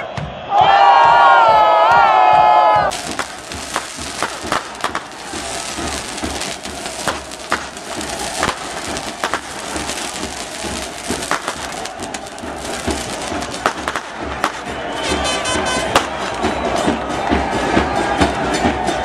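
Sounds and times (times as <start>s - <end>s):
stadium crowd noise: 0.0s - 19.0s
firecrackers popping: 2.9s - 17.2s.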